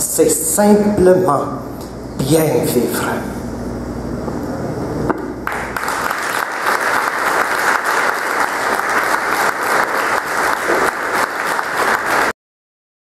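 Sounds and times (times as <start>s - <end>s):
audience applauding: 5.4s - 12.4s.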